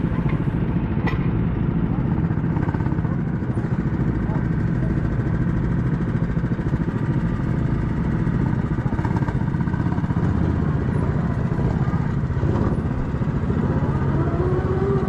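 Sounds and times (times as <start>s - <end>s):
small engine idling: 0.0s - 15.0s.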